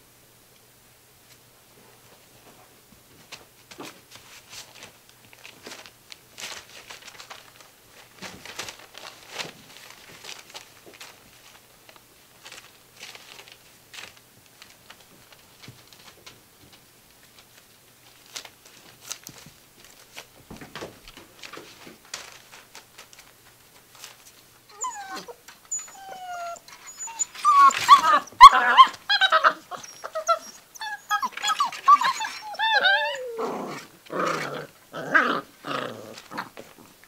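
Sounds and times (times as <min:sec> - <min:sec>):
puppies rustling on newspaper: 0:02.0 - 0:37.0
puppies whimpering: 0:24.7 - 0:33.5.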